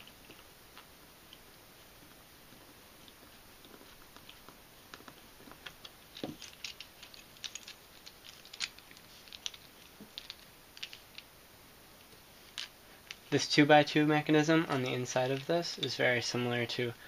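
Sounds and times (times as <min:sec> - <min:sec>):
plastic puzzle pieces clicking: 0:05.6 - 0:11.2.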